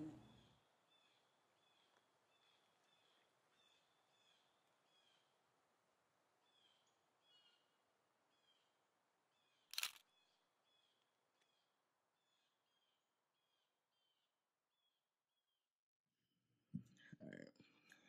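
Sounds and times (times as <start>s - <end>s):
sharp crackle: 9.7s - 10.0s.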